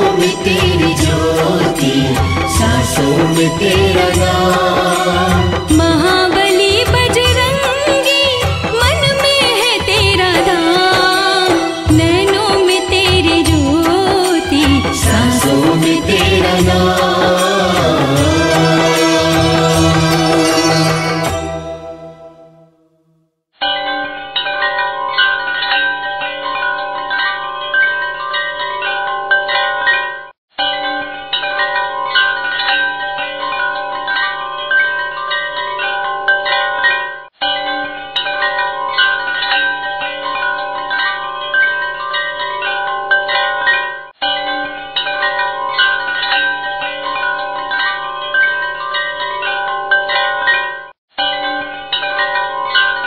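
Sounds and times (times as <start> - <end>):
chimes ringing: 10.4 - 22.7.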